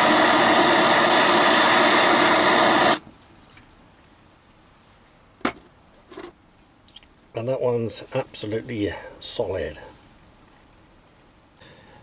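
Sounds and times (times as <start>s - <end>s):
butane torch hissing: 0.0s - 3.0s.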